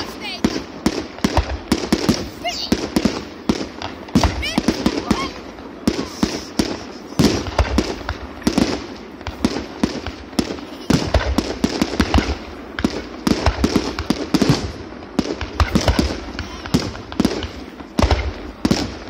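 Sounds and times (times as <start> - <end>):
fireworks bangs: 0.0 - 19.0
fireworks crackling: 0.0 - 19.0.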